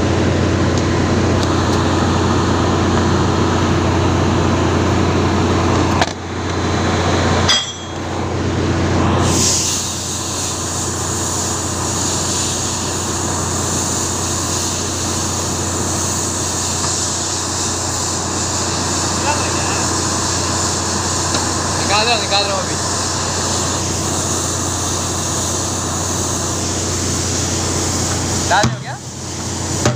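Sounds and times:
low machinery drone: 0:00.0 - 0:29.9
metallic clink: 0:07.5 - 0:08.0.

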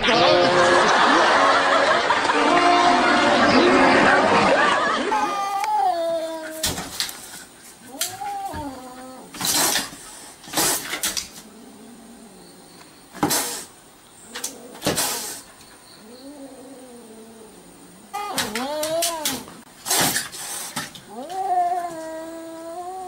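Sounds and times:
kitten yowling: 0:05.1 - 0:06.8
kitten hissing and spitting: 0:09.0 - 0:11.4, 0:13.2 - 0:13.8, 0:14.4 - 0:15.5, 0:18.4 - 0:21.1.

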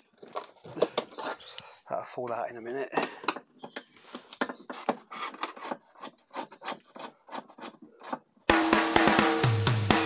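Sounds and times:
plastic scraping on plastic: 0:00.0 - 0:01.6, 0:02.9 - 0:08.4.

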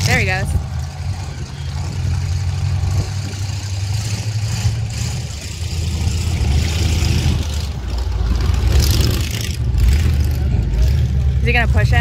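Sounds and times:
car engines running: 0:00.0 - 0:12.0
outdoor noise: 0:00.0 - 0:12.0.

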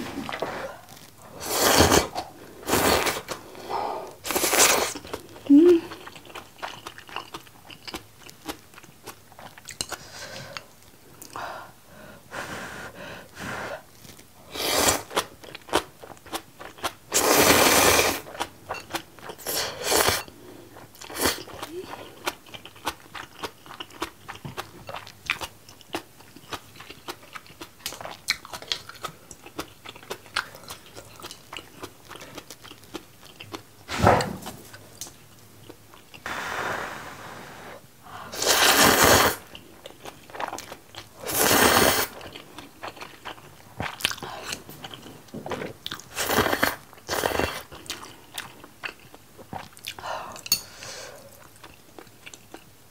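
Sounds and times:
slurping noodles and broth: 0:01.3 - 0:03.4, 0:04.2 - 0:05.0, 0:17.1 - 0:18.3, 0:36.2 - 0:39.5, 0:41.2 - 0:42.2
wet chewing with crunches: 0:04.3 - 0:10.0, 0:20.8 - 0:33.7, 0:38.4 - 0:50.0.

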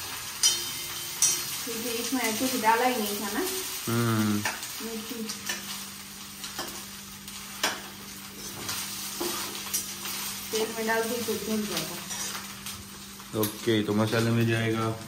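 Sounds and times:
light frying sizzle: 0:00.0 - 0:15.0
metal spoon scraping a pan: 0:00.4 - 0:01.6, 0:12.0 - 0:12.5.

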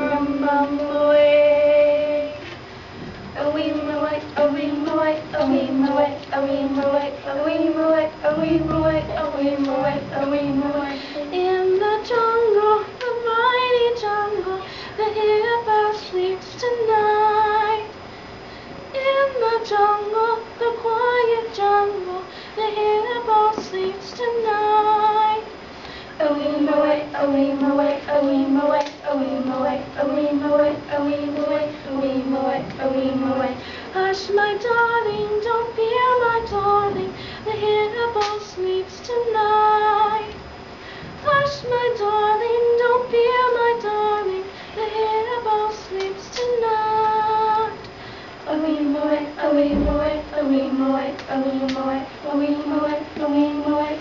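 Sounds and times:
lower held vocal line: 0:00.0 - 0:02.4, 0:03.0 - 0:17.8, 0:26.2 - 0:40.4, 0:41.2 - 0:47.8, 0:48.4 - 0:54.0
person singing a melody: 0:00.0 - 0:02.5, 0:03.4 - 0:17.8.

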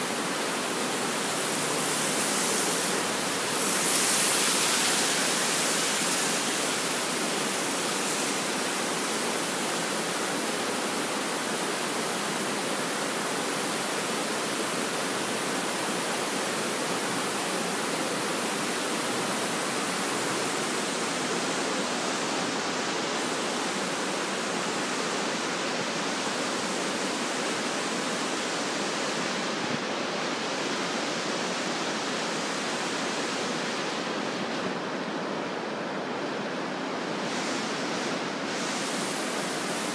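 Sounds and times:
river rapids rushing: 0:00.0 - 0:39.9.

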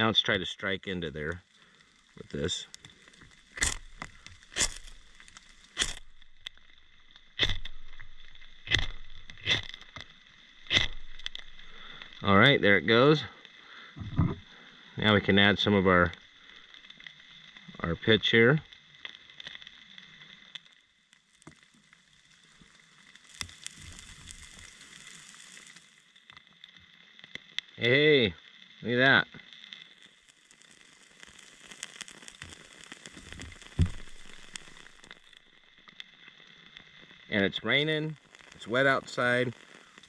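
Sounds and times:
small fire crackling: 0:00.0 - 0:40.0
fire steel scraping: 0:02.1 - 0:12.3, 0:31.6 - 0:35.5.

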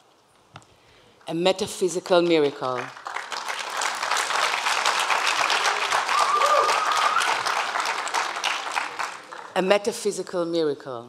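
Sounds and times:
audience applauding: 0:02.0 - 0:09.6
high cheer: 0:04.1 - 0:09.5.

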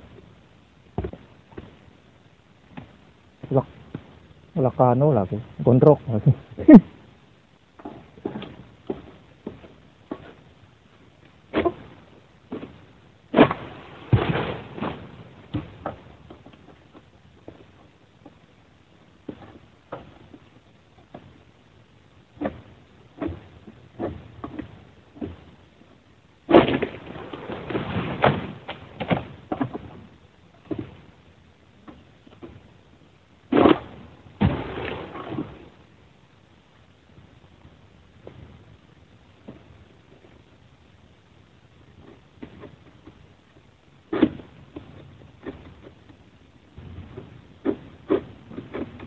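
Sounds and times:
leaves rustling: 0:07.8 - 0:18.3, 0:22.3 - 0:41.0
sickle knocking and cracking: 0:12.5 - 0:17.6, 0:26.5 - 0:30.0, 0:33.5 - 0:35.5
palm frond crashing down: 0:13.4 - 0:15.2, 0:33.5 - 0:35.7.

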